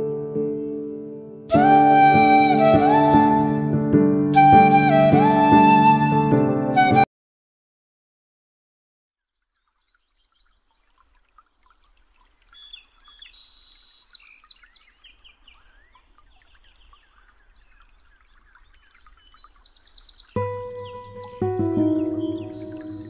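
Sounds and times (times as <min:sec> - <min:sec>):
birds chirping and trilling: 0:09.4 - 0:23.0.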